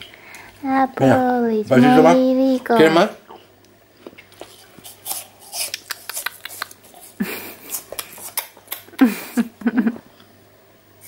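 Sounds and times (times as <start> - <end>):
man eating mouth sounds: 4.0 - 10.3.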